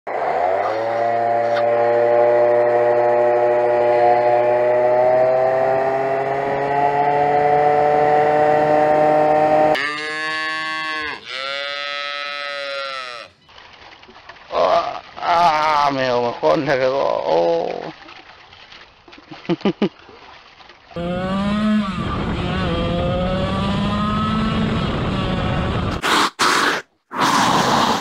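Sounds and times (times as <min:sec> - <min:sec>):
scooter engine accelerating: 0:00.1 - 0:12.0, 0:21.0 - 0:26.0
calf mooing: 0:09.7 - 0:13.4.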